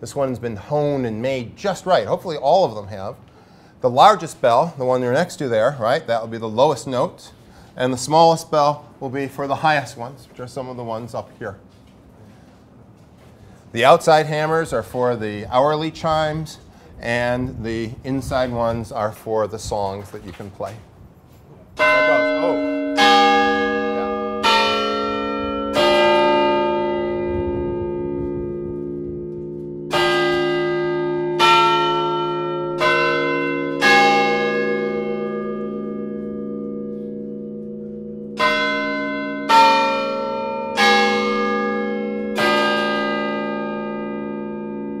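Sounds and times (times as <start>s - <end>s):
tower chime bells playing a tune: 21.8s - 45.0s.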